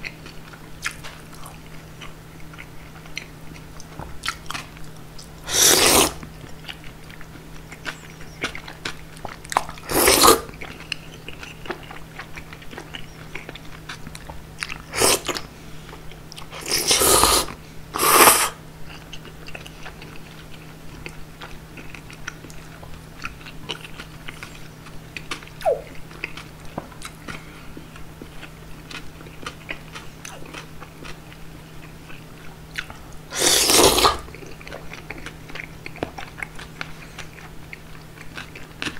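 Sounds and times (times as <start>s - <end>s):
chewing: 0.0s - 38.9s
slurping noodles: 5.5s - 6.2s, 9.8s - 10.5s, 14.9s - 15.4s, 16.5s - 18.6s, 33.3s - 34.3s.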